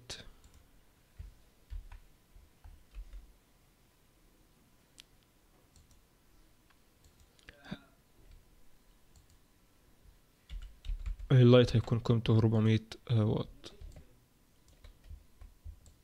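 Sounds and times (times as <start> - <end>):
computer mouse clicks: 5.0 - 6.0, 6.7 - 7.5, 9.1 - 9.4, 13.8 - 16.0.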